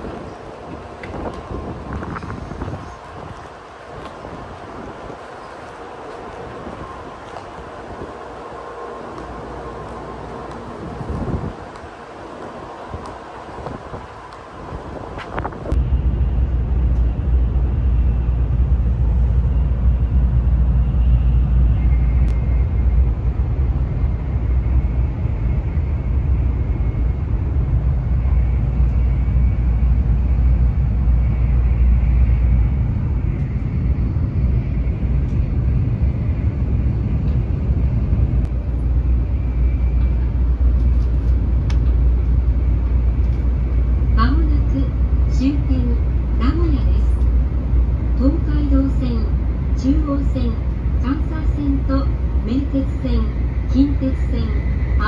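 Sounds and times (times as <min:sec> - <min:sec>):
train cabin low rumble: 0:00.0 - 0:55.0
faint high whine: 0:14.0 - 0:55.0.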